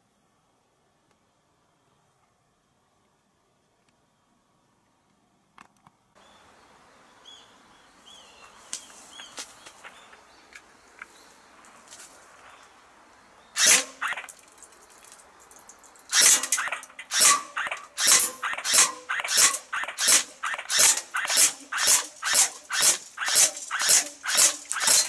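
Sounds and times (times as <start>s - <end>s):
faint bird chirps: 6.2s - 11.6s
airsoft pistol firing bursts: 13.6s - 14.3s, 16.1s - 25.0s
bbs hitting metal can: 16.3s - 25.0s.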